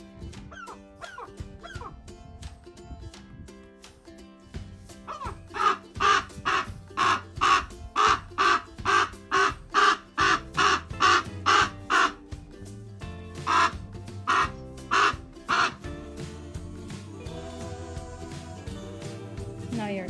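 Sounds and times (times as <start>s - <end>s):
background music: 0.0s - 20.0s
raven making gull-like calls: 5.1s - 12.2s, 13.4s - 15.9s.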